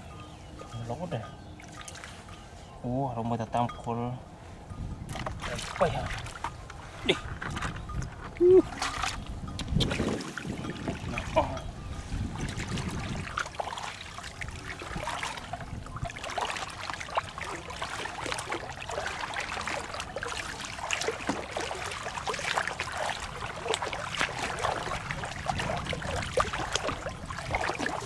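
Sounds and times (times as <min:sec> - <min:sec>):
footsteps splashing through water: 0:05.1 - 0:06.6, 0:08.7 - 0:11.4, 0:12.3 - 0:28.0.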